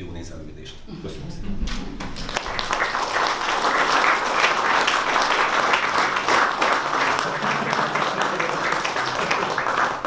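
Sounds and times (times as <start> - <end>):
audience applauding: 2.0 - 10.0.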